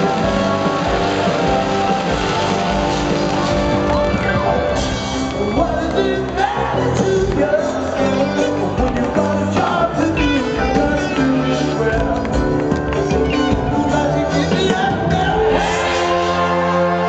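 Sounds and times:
live rock band playing: 0.0 - 17.0
piano: 0.0 - 17.0
man singing: 5.3 - 17.0.

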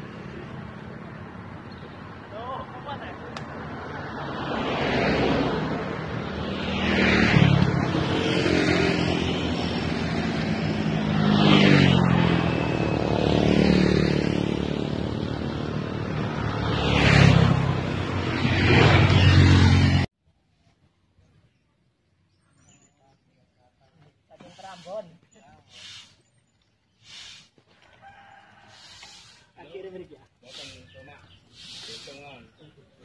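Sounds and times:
motorcycles passing by: 0.0 - 20.1.

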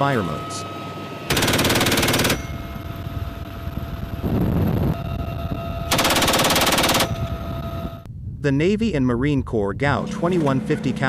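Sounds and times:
helicopter in flight: 0.0 - 8.1
machine gun bursts: 1.3 - 2.5, 5.9 - 7.2.

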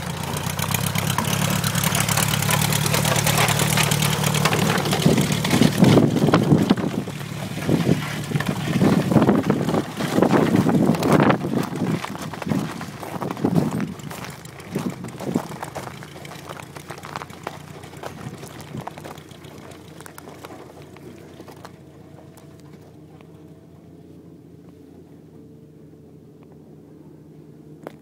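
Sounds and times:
light aircraft engine and propeller: 0.0 - 28.0
wind buffeting microphone: 4.6 - 16.0.

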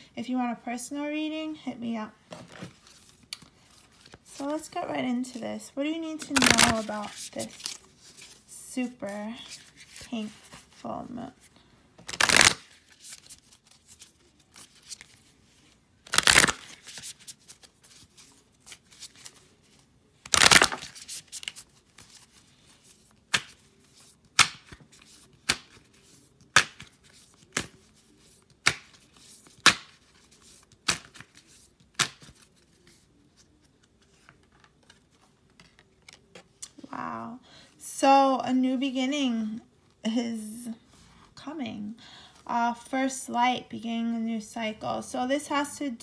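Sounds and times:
cards shuffling: 6.2 - 10.8, 12.0 - 36.9
cards slapping against cards: 6.3 - 8.3, 12.0 - 13.4, 16.1 - 17.7, 20.2 - 22.2, 23.1 - 32.7.

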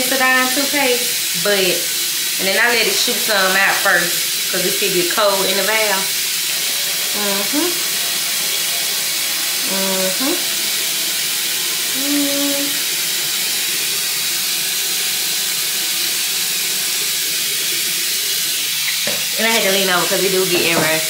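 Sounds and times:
water flosser spraying: 0.0 - 21.0
person humming muffled: 7.1 - 7.8, 9.6 - 10.5, 11.9 - 12.8.

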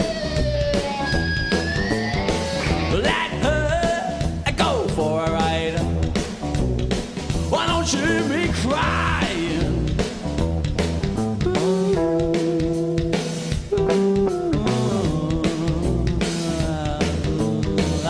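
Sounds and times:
lead guitar bending notes: 0.0 - 3.6, 11.2 - 16.4
blues-rock band playing: 0.0 - 18.0.

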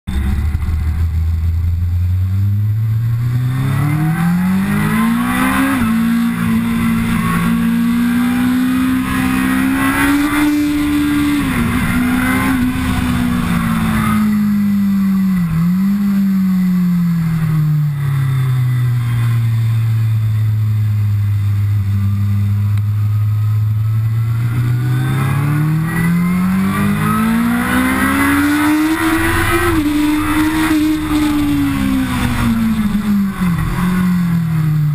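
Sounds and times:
motorcycle engine accelerating hard: 0.1 - 34.9.

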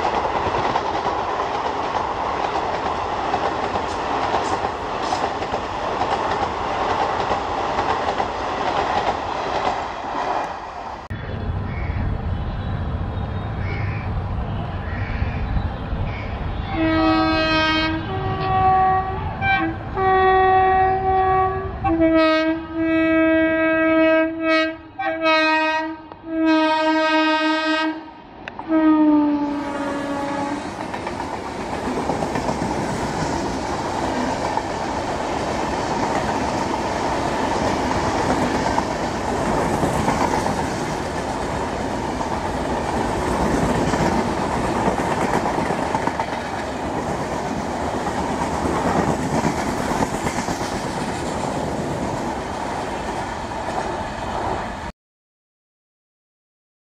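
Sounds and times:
train coaches rumbling past: 0.0 - 54.9
locomotive horn blasts: 16.5 - 28.1, 28.7 - 30.6.

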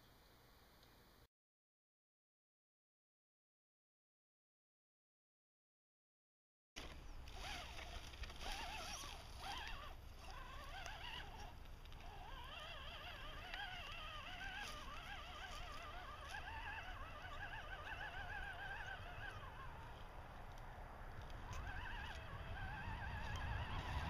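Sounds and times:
rc car electric drivetrain whine: 6.8 - 24.0.

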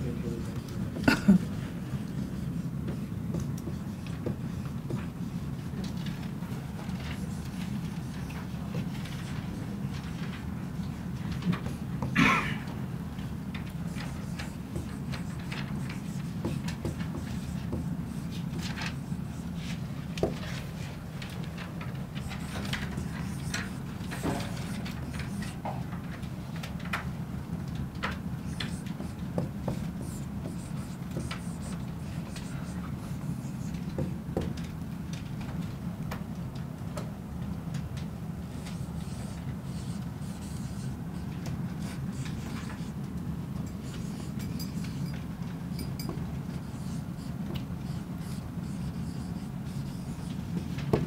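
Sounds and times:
steady low hum: 0.0 - 51.0
marker scratching on whiteboard: 0.2 - 12.1, 13.6 - 20.8, 22.2 - 25.7, 28.4 - 34.5, 38.5 - 43.0, 43.6 - 51.0.

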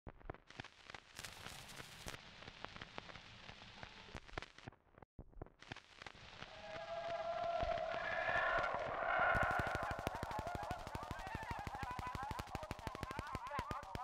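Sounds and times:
phonograph surface crackle and hiss: 0.1 - 8.1, 9.4 - 14.0
sharp clicks: 9.4 - 14.0.

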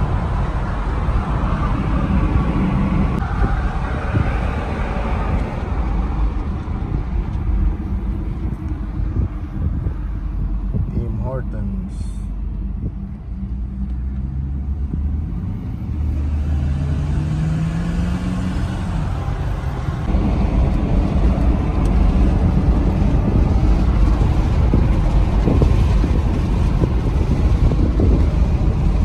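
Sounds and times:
low engine hum: 0.0 - 29.0
wind and tyre noise: 0.0 - 29.0.

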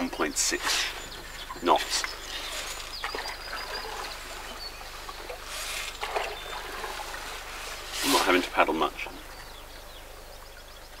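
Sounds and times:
birds chirping faintly: 0.0 - 11.0
paddle splashing in river water: 0.6 - 9.5.

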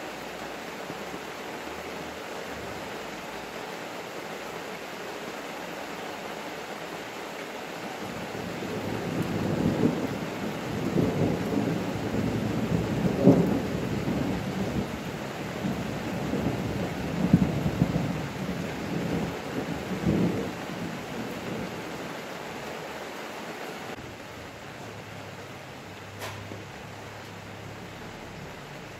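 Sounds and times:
rain falling: 0.0 - 28.9
thunder rumbling: 8.1 - 22.1.

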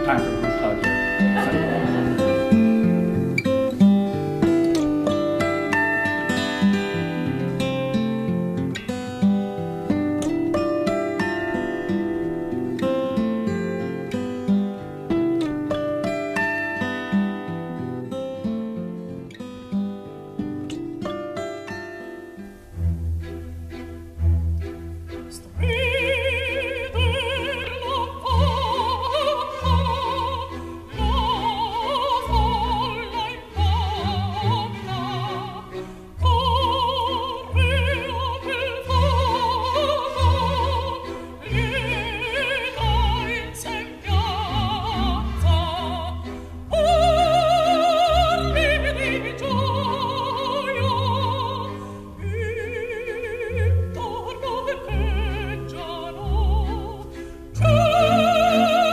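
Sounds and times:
operatic singing with vibrato: 0.0 - 6.7, 25.4 - 58.9
orchestral accompaniment: 0.0 - 7.5.

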